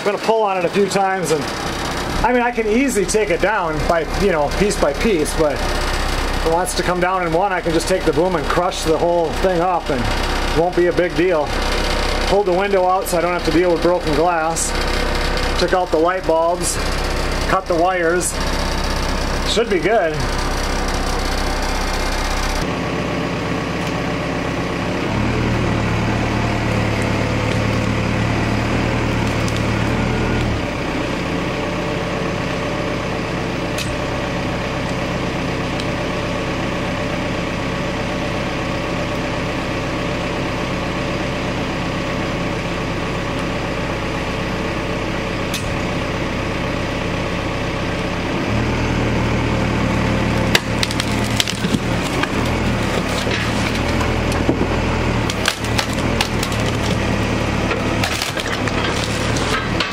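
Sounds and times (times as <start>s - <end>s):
truck engine revving: 0.6s - 59.9s
wood cracking: 26.6s - 30.7s, 50.2s - 59.9s.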